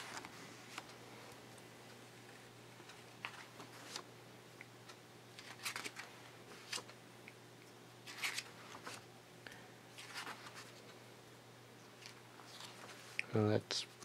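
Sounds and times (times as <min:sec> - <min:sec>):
paper pages rustling: 0:00.0 - 0:00.9, 0:02.9 - 0:04.1, 0:05.4 - 0:07.0, 0:08.0 - 0:09.0, 0:10.0 - 0:10.8, 0:12.0 - 0:13.2
low steady hum: 0:00.0 - 0:14.0.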